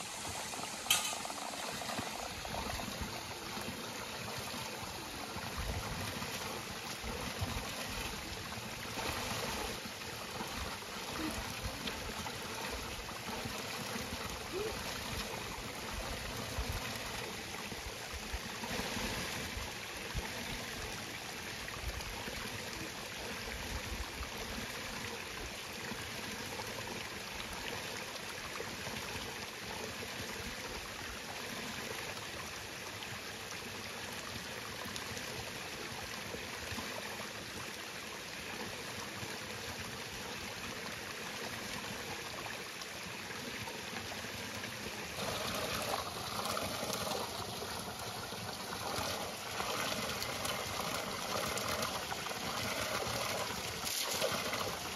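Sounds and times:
stream flowing: 0.0 - 54.9.

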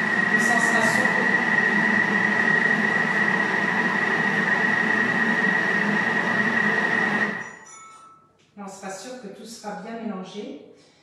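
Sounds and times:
kitchen mixer motor whirring: 0.0 - 7.7.

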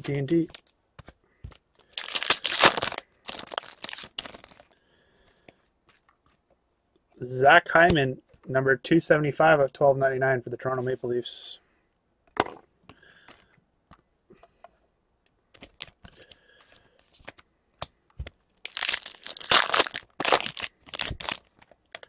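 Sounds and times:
foil wrapper tearing and crinkling: 1.8 - 4.7, 18.6 - 21.6
faint clicks of cards handled: 12.8 - 18.6.

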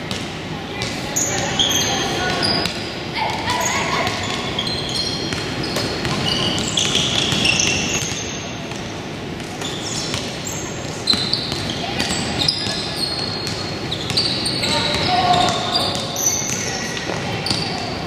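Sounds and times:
sneakers squeaking: 0.0 - 18.0
basketball bouncing: 5.2 - 17.9.

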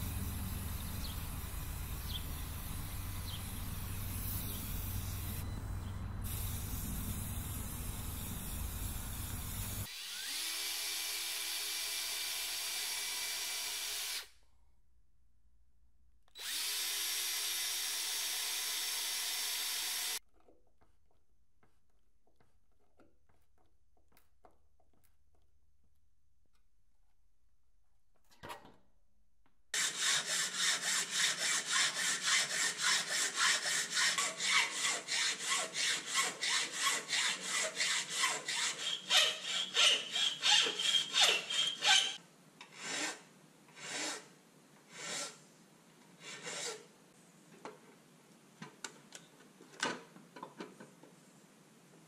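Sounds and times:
hacksaw cutting: 29.8 - 44.3, 44.9 - 45.4, 46.2 - 46.9.

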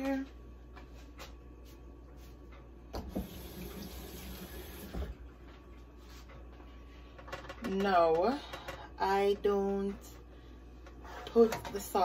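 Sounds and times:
tap water running into sink: 3.0 - 5.1.

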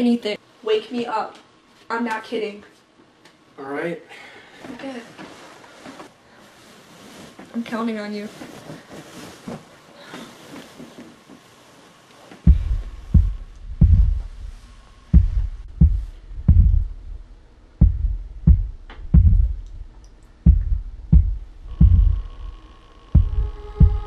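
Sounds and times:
faint steady hum: 0.0 - 24.0
heartbeat thumps: 12.4 - 22.5, 23.1 - 24.0.

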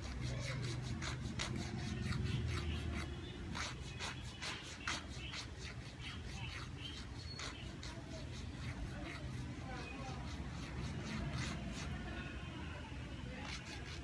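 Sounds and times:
nail tool scraping fingernails: 0.0 - 12.0, 13.3 - 14.0.

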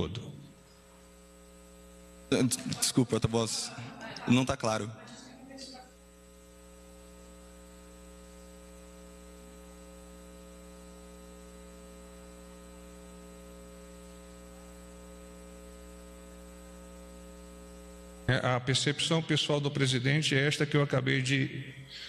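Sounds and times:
electrical mains hum: 0.0 - 22.0
person speaking: 2.3 - 5.9.

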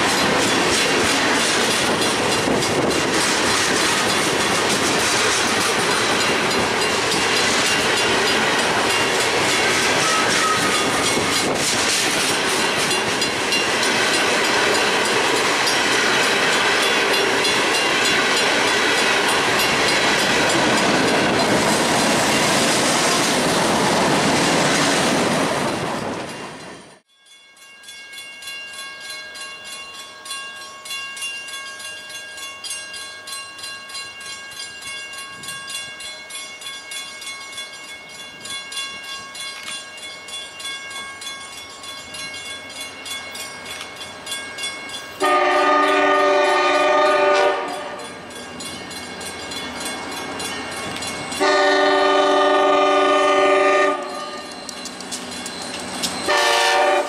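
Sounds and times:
train wheels clacking on rails: 0.0 - 27.0, 31.8 - 57.0.

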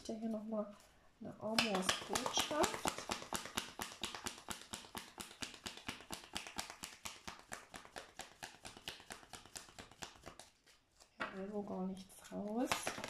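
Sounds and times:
cards being shuffled: 1.6 - 13.0.

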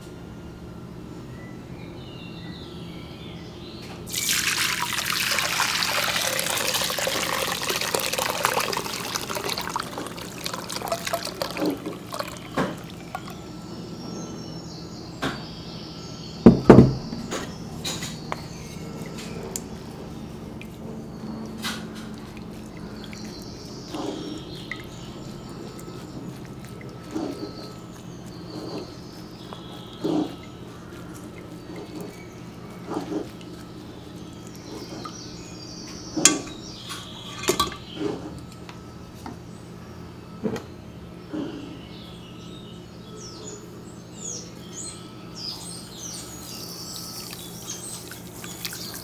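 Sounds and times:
drips: 4.0 - 13.6, 17.8 - 38.6, 45.4 - 49.0
liquid pouring into glass bowl: 4.1 - 13.5, 21.4 - 27.7, 46.9 - 49.0
sharp knocks: 16.5 - 17.5.

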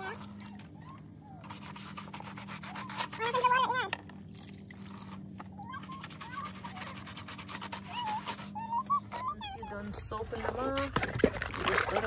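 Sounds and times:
brush scrubbing rubber mat: 1.4 - 3.9, 4.9 - 10.8
high wavering cry: 7.8 - 9.8.

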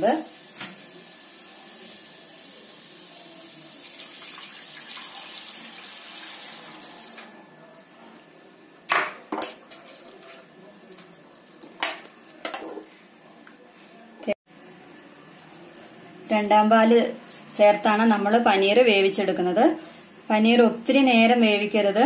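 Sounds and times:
liquid pouring into a pan: 3.8 - 7.1.

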